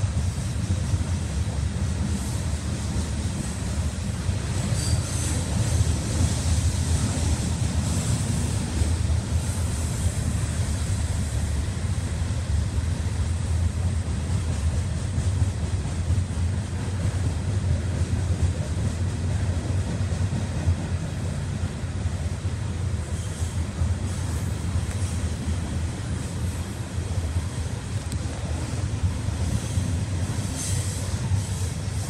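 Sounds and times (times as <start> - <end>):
train cars rumbling by: 0.0 - 32.0.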